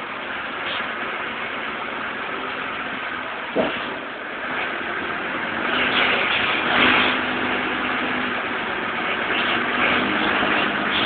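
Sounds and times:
forklift engine running: 0.0 - 11.0.

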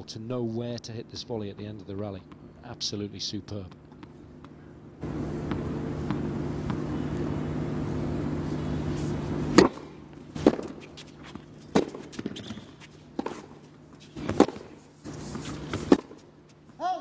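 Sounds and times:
steady background hum: 0.0 - 17.0
tennis ball hitting racket strings: 9.0 - 16.3.

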